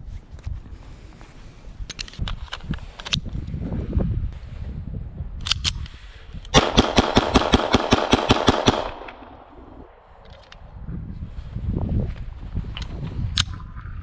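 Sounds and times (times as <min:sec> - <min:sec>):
sharp click: 0:05.4 - 0:06.0
pistol shots rapid fire: 0:06.6 - 0:09.8.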